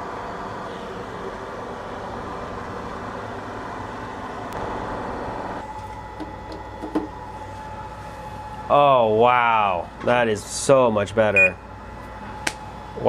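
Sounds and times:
steady mechanical drone: 0.0 - 13.0.

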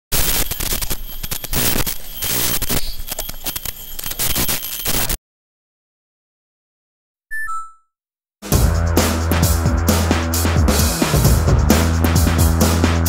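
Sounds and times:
crackling static with clicks: 0.1 - 5.2.

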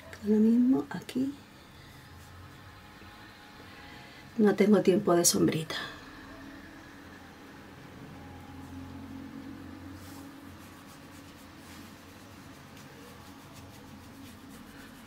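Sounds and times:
low hum of room tone: 0.0 - 15.0
makeup pencil scratching on skin: 10.0 - 15.0.

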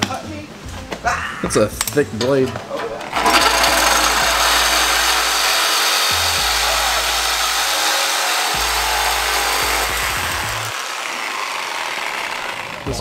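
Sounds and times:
reciprocating saw cutting metal: 3.1 - 13.0.

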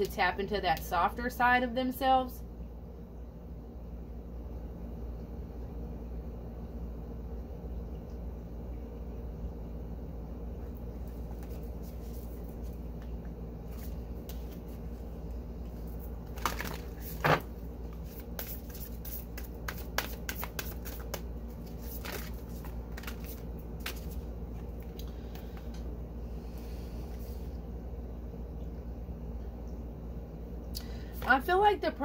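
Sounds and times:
steady low hum: 0.0 - 32.0
cards being shuffled: 11.2 - 13.1, 15.7 - 25.7.

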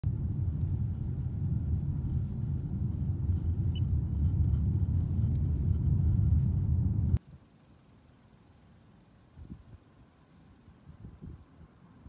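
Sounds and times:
car cabin road and engine rumble: 0.0 - 9.3.

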